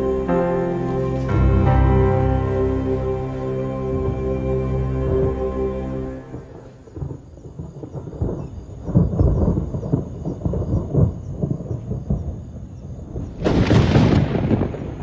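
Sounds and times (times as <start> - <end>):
thunder rumbling and crackling: 6.2 - 15.0
loud thunderclap: 6.4 - 15.0.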